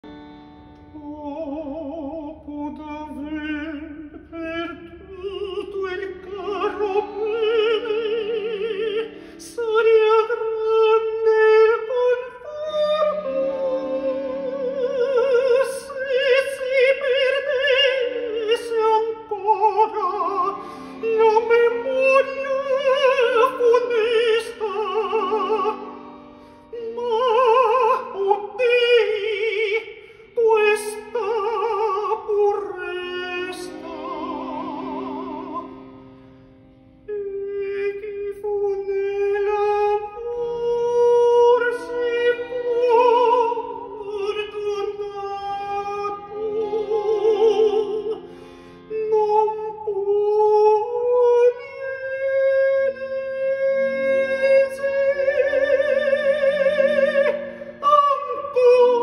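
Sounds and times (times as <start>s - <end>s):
man singing opera: 1.0s - 25.8s, 26.7s - 35.7s, 37.1s - 48.2s, 48.9s - 59.0s
instrumental accompaniment: 11.9s - 59.0s.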